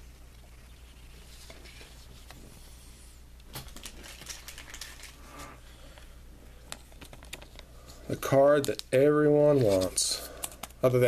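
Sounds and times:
low steady hum: 0.0s - 11.0s
plastic sleeves crinkling: 3.5s - 5.6s, 6.8s - 11.0s.

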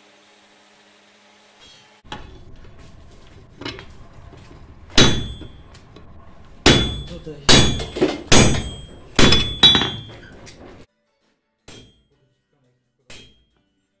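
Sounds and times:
hammer striking hot steel on anvil: 4.9s - 5.8s, 6.6s - 10.3s, 11.7s - 12.0s, 13.1s - 13.5s.

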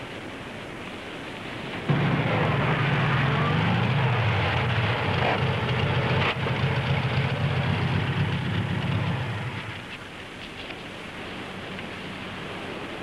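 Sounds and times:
outdoor rushing noise: 1.7s - 10.1s
vehicle engine running: 1.9s - 9.9s.

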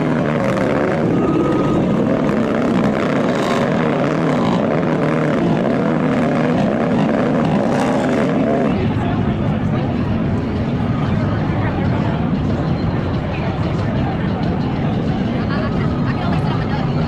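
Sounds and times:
atv engine revving hard: 0.0s - 8.8s.

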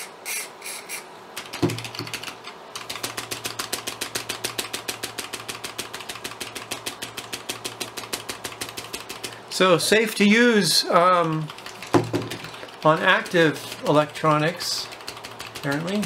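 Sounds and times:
spray can hissing: 0.0s - 1.1s
keyboard key clicking rapidly: 1.4s - 9.4s, 11.0s - 16.0s.

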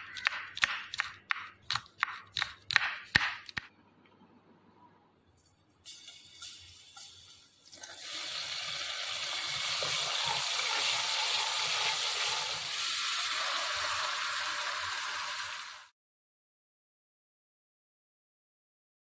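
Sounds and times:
oil sizzling in wok: 5.8s - 15.9s.

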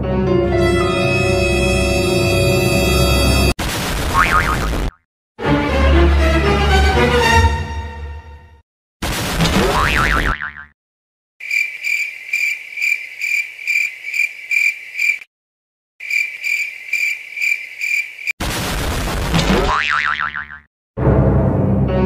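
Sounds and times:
cartoon boing effect: 4.1s - 5.0s, 9.5s - 10.7s, 19.4s - 20.7s
crickets chirping: 11.4s - 15.2s, 16.0s - 18.3s.

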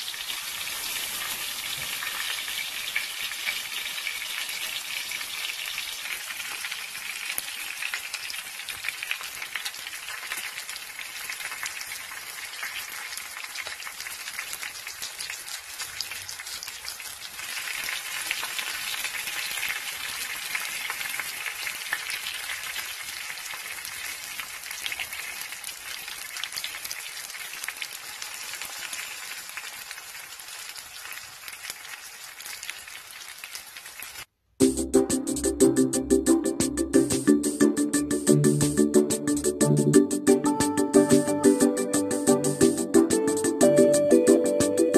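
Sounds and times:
fish sizzling in oil: 0.0s - 34.3s.

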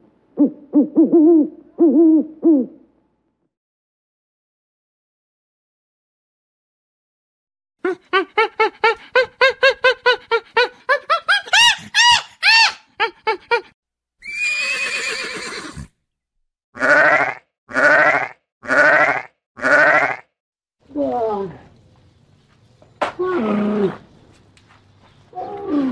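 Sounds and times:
sheep bleating: 16.8s - 20.2s.

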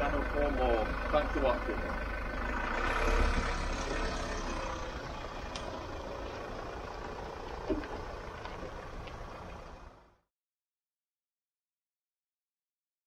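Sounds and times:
pickup engine running: 0.0s - 10.2s.

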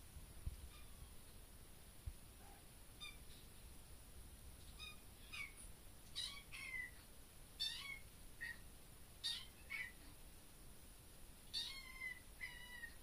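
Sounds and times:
kitten meowing: 6.2s - 7.0s, 7.6s - 8.6s, 11.5s - 13.0s.

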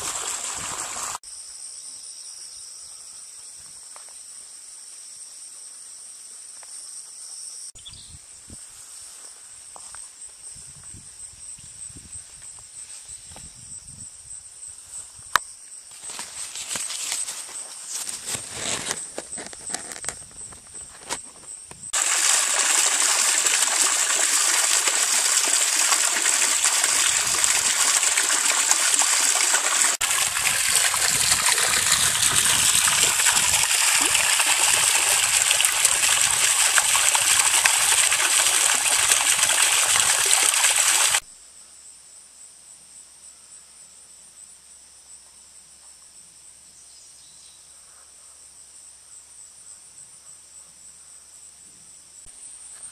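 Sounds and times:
water trickling into a pond: 0.0s - 1.2s, 18.0s - 41.3s
crickets chirping: 0.1s - 23.6s, 41.2s - 52.9s.

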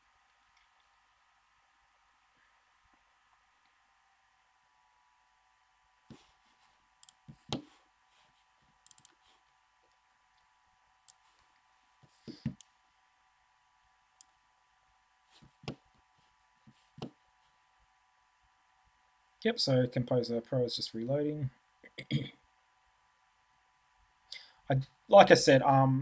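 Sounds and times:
thin steady hum: 0.0s - 26.0s
computer mouse clicks: 7.0s - 7.7s, 8.8s - 9.2s.

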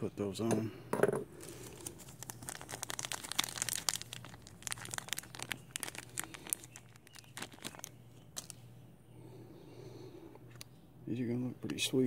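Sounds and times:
plastic bag crinkling: 1.4s - 8.7s.

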